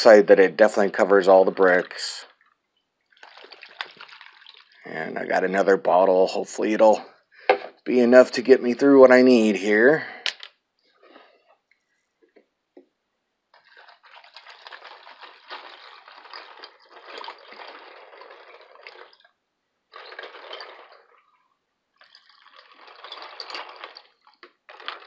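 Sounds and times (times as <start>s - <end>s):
liquid pouring and splashing into tub: 0.0s - 8.5s, 13.6s - 25.0s.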